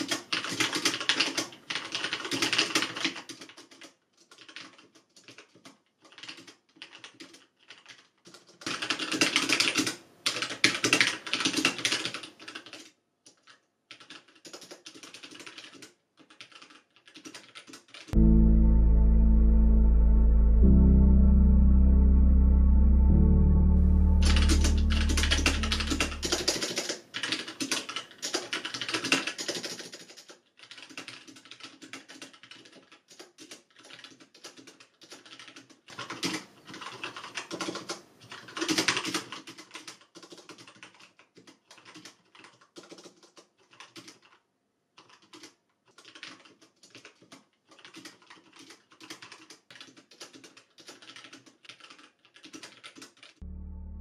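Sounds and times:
mechanical keyboard typing: 0:00.0 - 0:18.2, 0:24.2 - 0:44.4, 0:45.0 - 0:53.4.

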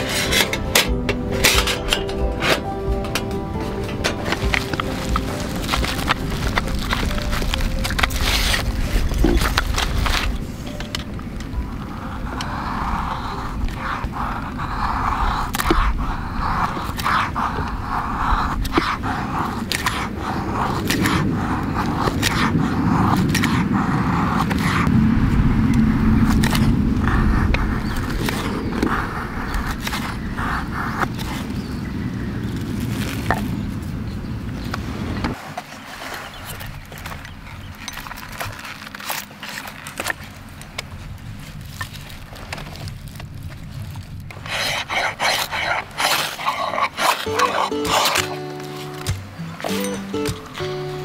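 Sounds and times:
knife scraping ferrocerium rod: 0:00.0 - 0:00.9, 0:44.3 - 0:50.6
knife scraping wood: 0:00.0 - 0:02.2, 0:12.4 - 0:24.9, 0:44.3 - 0:51.0
steady low rumble: 0:00.0 - 0:35.4, 0:36.7 - 0:46.9.

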